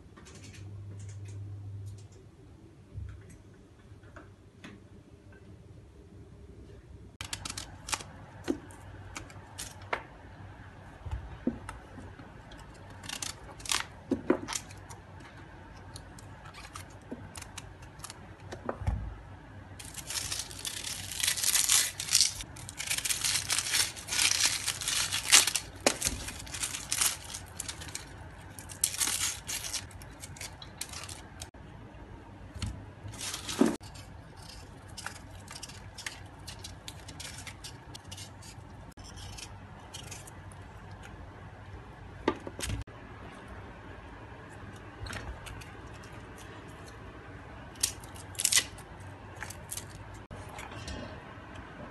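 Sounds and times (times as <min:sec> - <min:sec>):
onion skin crackling and tearing: 0:07.2 - 0:09.8, 0:12.5 - 0:15.0, 0:15.9 - 0:18.6, 0:19.8 - 0:31.5, 0:33.1 - 0:40.4, 0:47.7 - 0:50.3.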